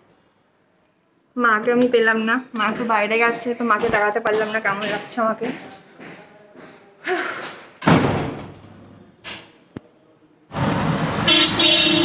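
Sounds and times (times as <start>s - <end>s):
door slamming: 7.8s - 8.6s
auto-rickshaw in street traffic: 10.5s - 12.0s.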